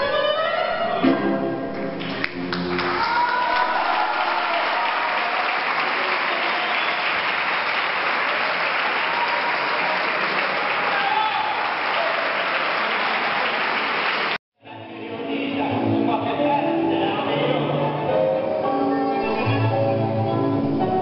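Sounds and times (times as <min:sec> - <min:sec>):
audience applauding: 0:02.0 - 0:14.4.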